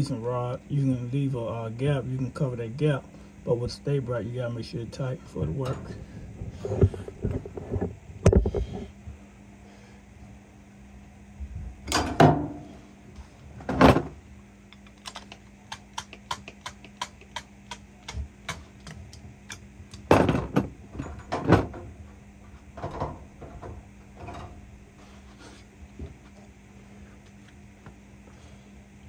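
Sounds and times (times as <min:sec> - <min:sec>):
faint steady hum: 0:00.0 - 0:29.0
tools knocking and clattering: 0:18.1 - 0:21.9, 0:22.8 - 0:24.6.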